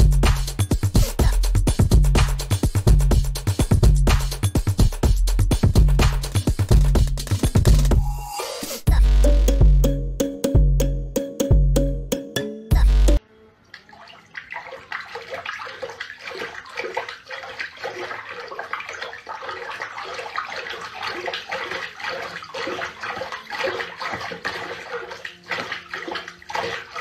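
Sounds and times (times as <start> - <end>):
water splashing in bathtub: 13.6 - 27.0.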